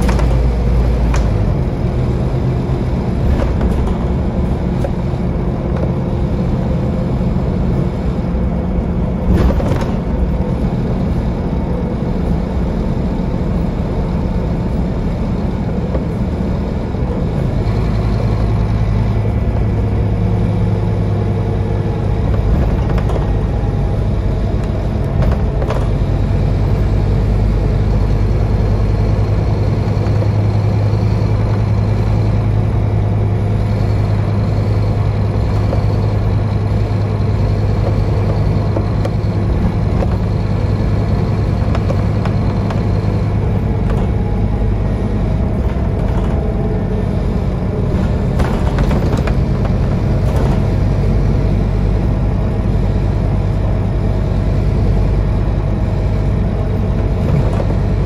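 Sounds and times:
bus engine droning: 0.0 - 58.0
rattles: 35.1 - 51.1.

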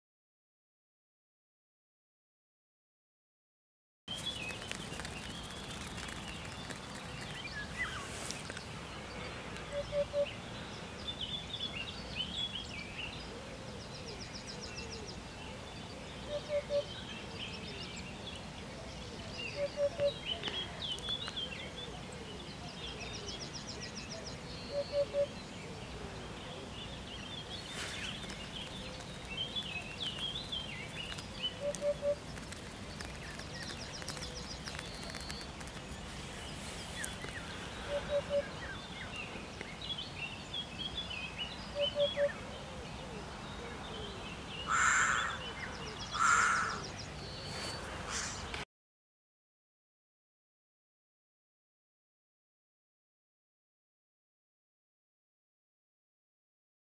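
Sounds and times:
small birds chirping and trilling: 4.1 - 48.6
hoopoe singing low song: 4.2 - 47.7.

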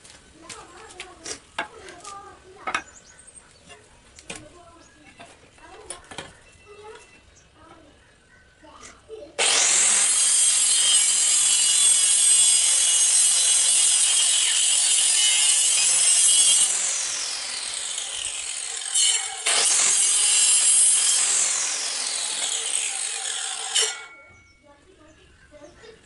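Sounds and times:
circular saw cutting wood: 9.4 - 24.3.

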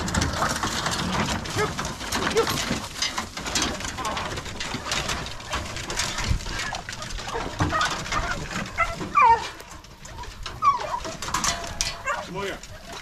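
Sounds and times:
puppies yipping and whining: 5.0 - 13.0.

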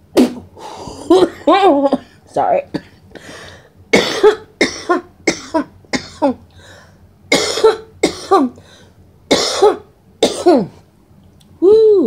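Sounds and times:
woman coughing: 0.2 - 3.0, 3.9 - 6.4, 7.3 - 8.6, 9.3 - 10.8.

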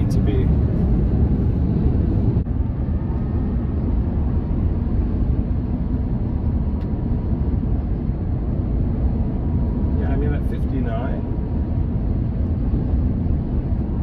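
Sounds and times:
road and wind noise in cabin: 0.0 - 14.0.

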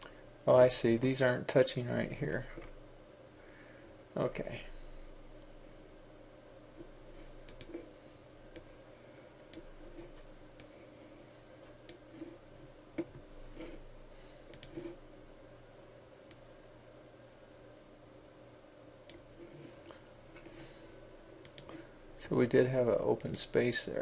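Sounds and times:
faint steady hum: 0.0 - 24.0
computer mouse clicks: 7.4 - 7.9, 8.5 - 8.7, 11.8 - 12.1, 14.5 - 15.0, 19.1 - 19.3, 21.4 - 21.8.

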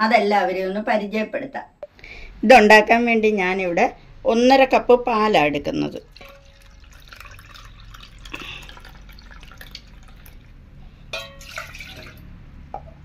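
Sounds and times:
milk pouring into a cup: 6.1 - 10.6, 11.4 - 12.3.

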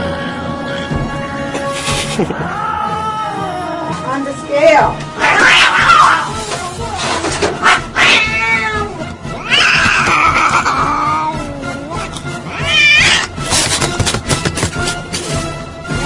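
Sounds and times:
cat meowing: 5.2 - 6.4, 7.6 - 13.4.

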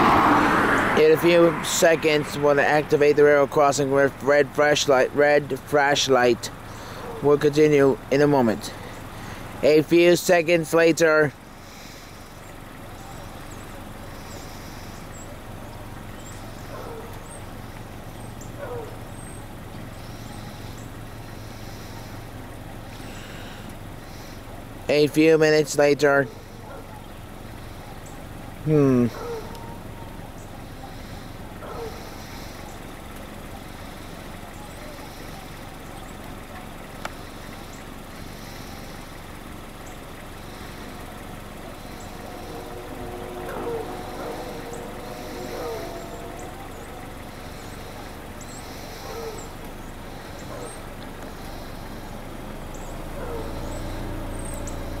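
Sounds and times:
low engine rumble: 0.0 - 55.0
short falling calls: 37.8 - 55.0.

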